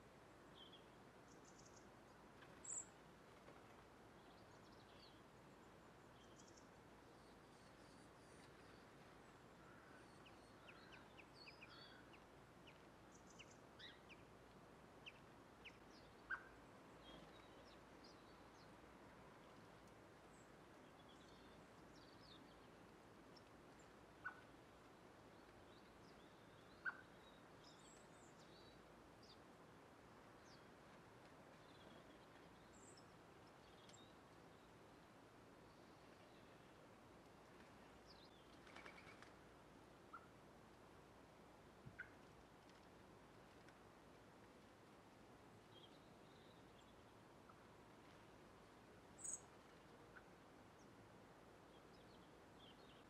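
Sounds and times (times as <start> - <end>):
small birds chirping: 49.2 - 49.6.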